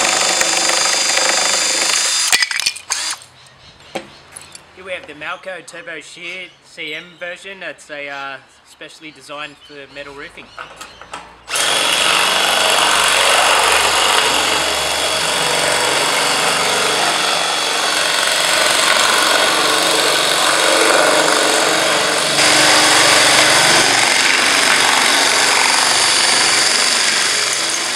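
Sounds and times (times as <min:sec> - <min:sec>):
drill shearing through metal sheet: 0:00.0 - 0:03.2, 0:11.5 - 0:27.9.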